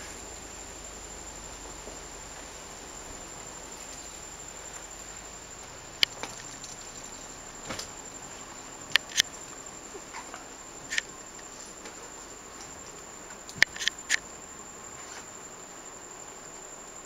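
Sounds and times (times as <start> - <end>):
sharp clicks: 8.9 - 9.3, 13.5 - 14.2.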